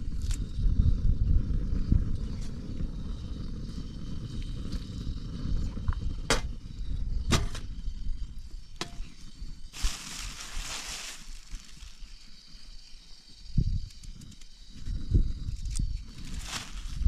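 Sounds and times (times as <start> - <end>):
wind rumbling on microphone: 0.0 - 17.0
plastic bag rustling: 9.8 - 12.0, 16.2 - 17.0.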